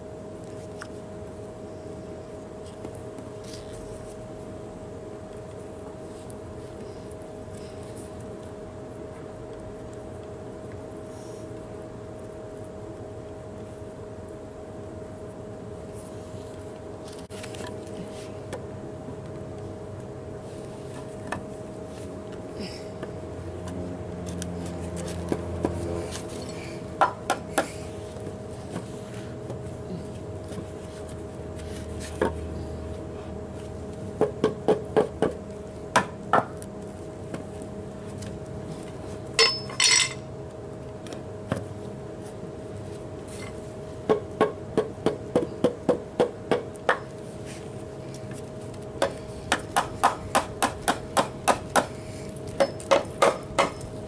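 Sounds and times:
claw hammer striking wood: 49.5 - 51.9, 52.6 - 53.8.

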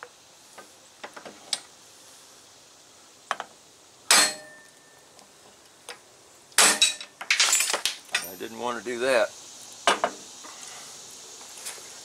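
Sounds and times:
hammer striking metal: 4.1 - 4.6.

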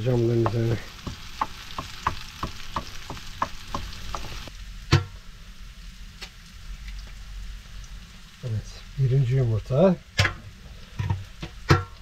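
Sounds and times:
spatula stirring in a pan: 0.0 - 4.5
greens sizzling in a frying pan: 0.0 - 12.0.

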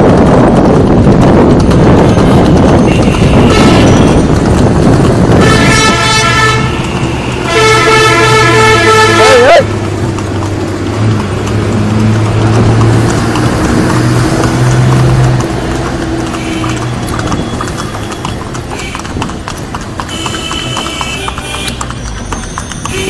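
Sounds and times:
vehicle engine humming: 0.0 - 23.0
vehicle horn blasts: 2.2 - 4.2, 5.3 - 9.6, 20.1 - 21.8.

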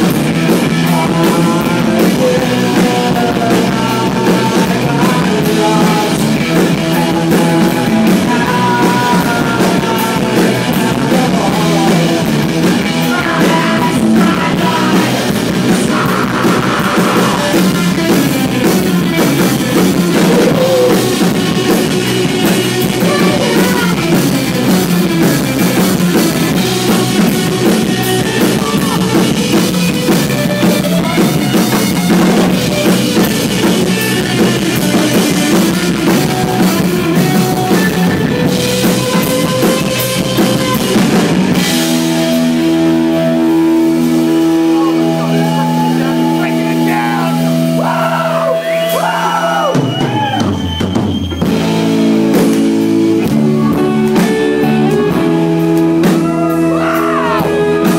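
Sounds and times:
rock band playing live: 0.0 - 57.9.

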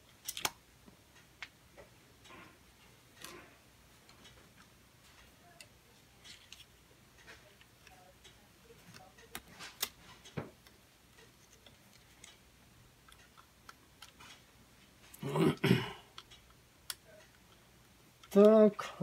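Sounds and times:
screwdrivers clicking and tapping: 0.0 - 0.6, 8.8 - 12.4, 13.0 - 14.4, 16.1 - 17.6.

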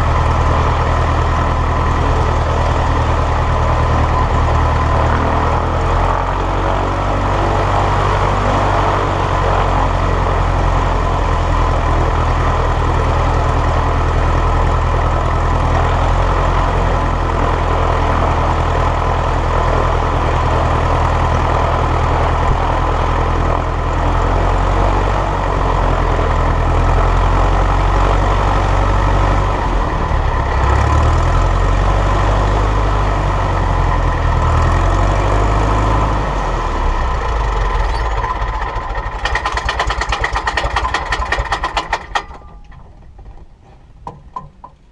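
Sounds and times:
light aircraft piston engine: 0.0 - 44.5.

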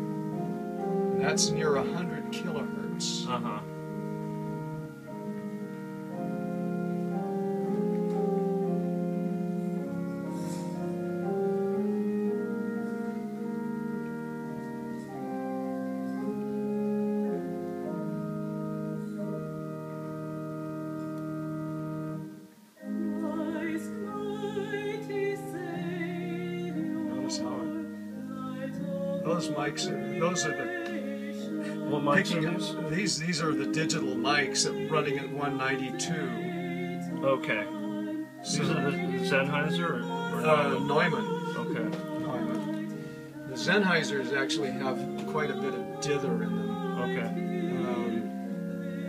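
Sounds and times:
held keyboard chords: 0.0 - 49.0
singer with wide vibrato: 22.8 - 49.0.

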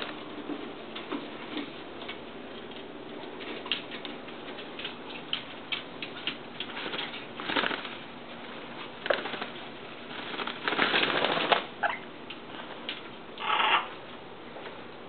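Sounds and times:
parrot beaks and claws clicking: 2.0 - 8.0
parrot squeaks: 11.8 - 12.1, 13.4 - 14.0.

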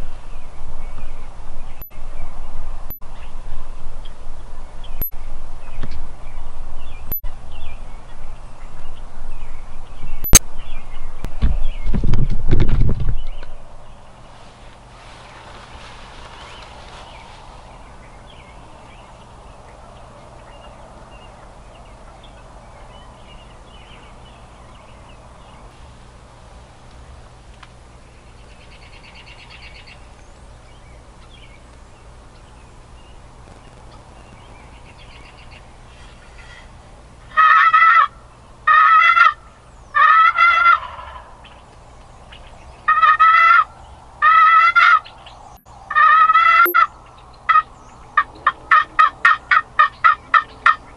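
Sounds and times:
quiet field background: 0.0 - 50.9
turkey gobbling: 37.3 - 39.4, 40.0 - 41.6, 42.9 - 45.1, 45.9 - 46.9, 47.5 - 50.9.

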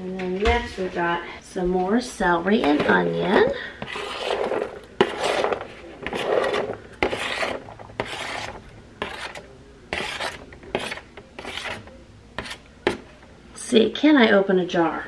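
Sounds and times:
knife scraping cutting board: 2.6 - 13.1.

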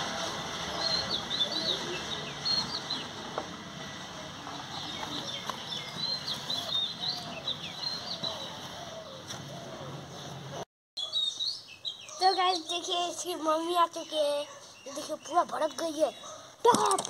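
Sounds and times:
small birds chirping: 0.5 - 3.2, 4.4 - 10.4, 11.0 - 16.9
lower falling bird calls: 4.8 - 10.4.

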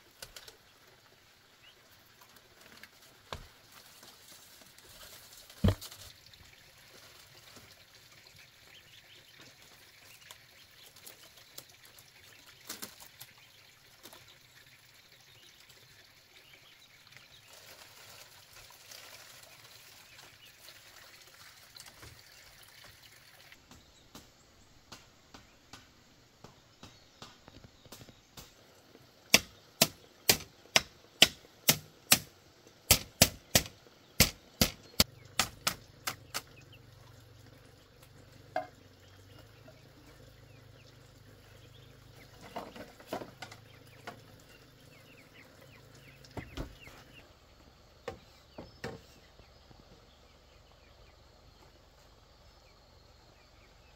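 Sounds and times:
tool striking bamboo: 29.3 - 32.3, 32.9 - 36.5.

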